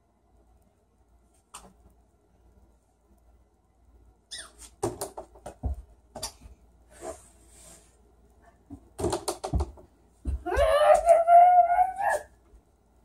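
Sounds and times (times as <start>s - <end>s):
short falling squeak: 4.3s - 4.6s
soft rustle: 6.5s - 8.7s
ball knocking on wooden door: 8.7s - 10.4s.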